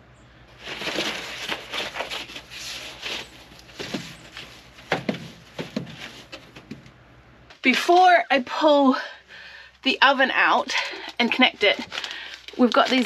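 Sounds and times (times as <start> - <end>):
rubber hose rustling and scraping: 0.5 - 6.9, 10.7 - 13.0.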